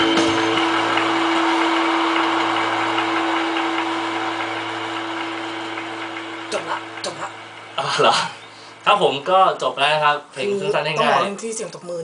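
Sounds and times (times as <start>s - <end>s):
applause: 0.0s - 8.0s
held low note: 0.0s - 10.1s.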